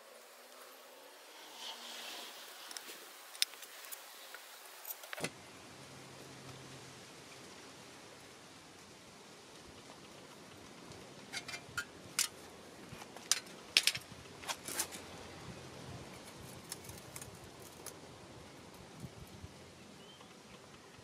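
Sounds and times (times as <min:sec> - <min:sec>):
faint steady hiss: 0:00.0 - 0:21.0
metal clicks and clinks: 0:11.3 - 0:12.4, 0:13.2 - 0:14.0.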